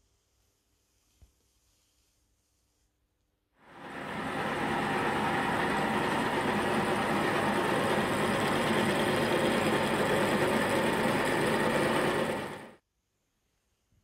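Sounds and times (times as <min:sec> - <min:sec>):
milling machine cutting metal: 0:03.7 - 0:12.8.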